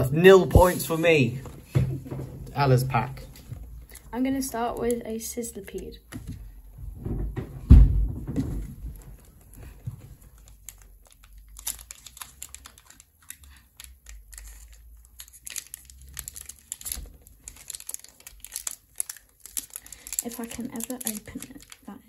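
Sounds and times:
foil wrapper crinkling: 0:08.9 - 0:22.0
foil wrapper tearing: 0:10.3 - 0:22.0.

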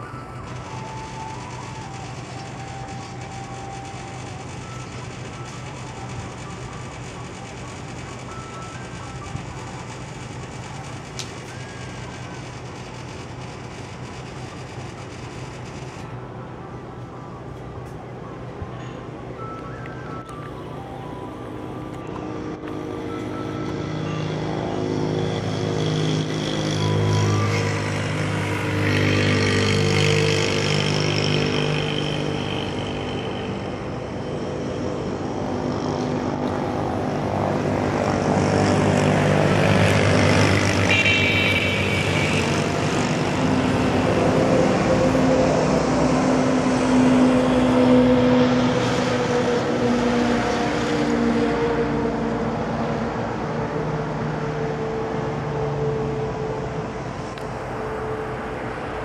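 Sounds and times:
passing traffic engines: 0:00.0 - 0:59.0
high-pitched beep: 0:40.9 - 0:42.6.

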